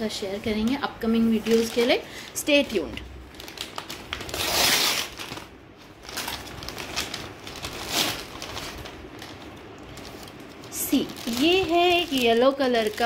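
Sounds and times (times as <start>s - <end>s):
paper mailer tearing and crinkling: 3.4s - 13.0s.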